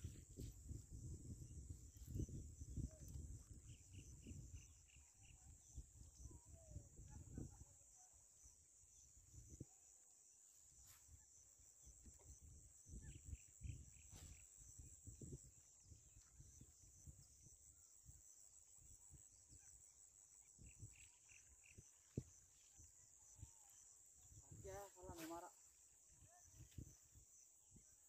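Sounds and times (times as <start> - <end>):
insect drone: 0.0 - 28.0.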